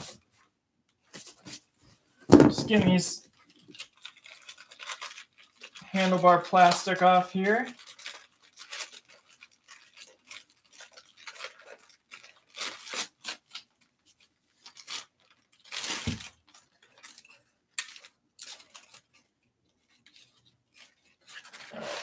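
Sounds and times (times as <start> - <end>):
plastic wrap rustling and crinkling: 0.0 - 22.0
crunch and thump: 2.3 - 2.9, 16.0 - 16.3.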